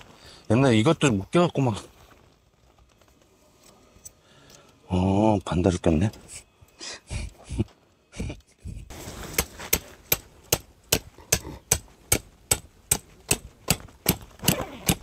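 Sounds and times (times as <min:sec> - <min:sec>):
mallet hammering tent pegs: 0:09.3 - 0:15.0.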